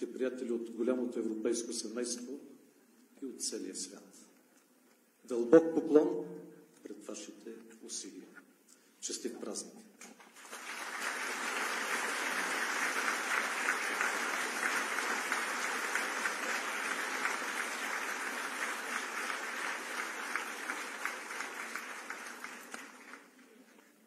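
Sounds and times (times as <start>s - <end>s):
audience applauding: 10.3s - 23.6s.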